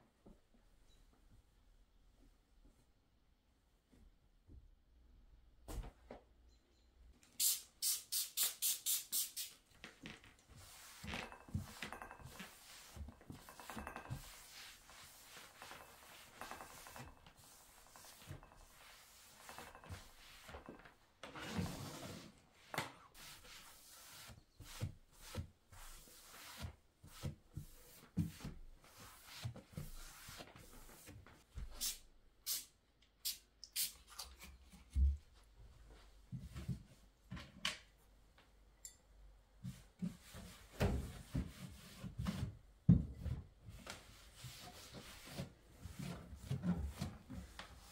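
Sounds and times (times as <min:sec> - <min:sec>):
spray bottle squirting: 0:07.4 - 0:09.6, 0:31.8 - 0:34.0
cloth rubbing on wooden table: 0:10.6 - 0:20.8.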